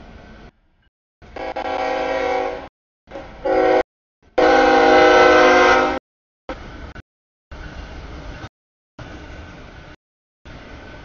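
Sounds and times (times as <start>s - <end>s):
locomotive air horn blasts: 1.3s - 6.0s.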